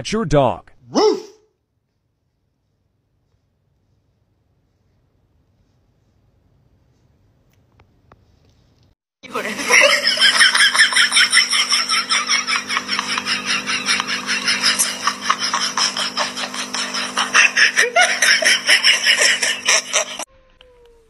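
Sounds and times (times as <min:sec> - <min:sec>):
person laughing hard: 0:09.2 - 0:20.3.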